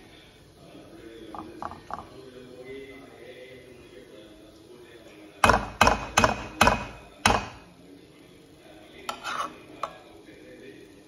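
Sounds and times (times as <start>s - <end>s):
metal spatula scraping pan: 9.0s - 10.0s.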